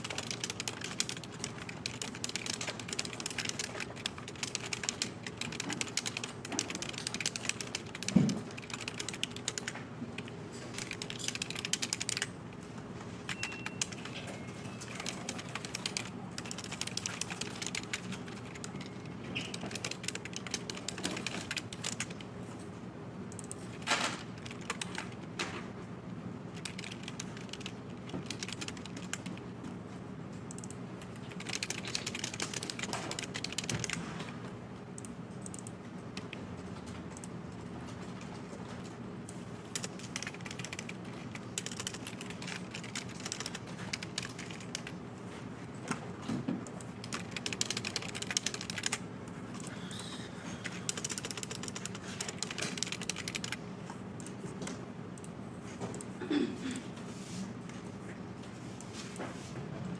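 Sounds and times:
fast typing on keyboard: 0.0 - 12.4, 13.2 - 22.3, 23.4 - 25.4, 26.5 - 29.6, 30.5 - 34.4, 35.0 - 36.4, 39.6 - 45.0, 46.7 - 53.6
steady low hum: 0.0 - 59.9.

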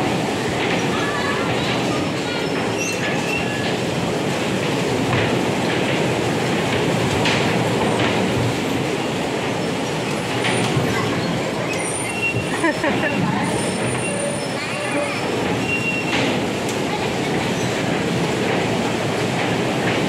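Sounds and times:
bumper cars rolling rumble: 0.0 - 20.0
high squeals: 13.1 - 16.2.

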